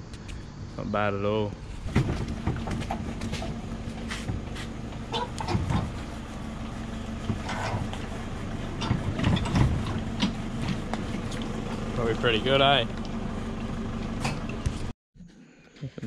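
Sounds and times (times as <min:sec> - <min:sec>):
vehicle engine idling: 0:01.2 - 0:14.9.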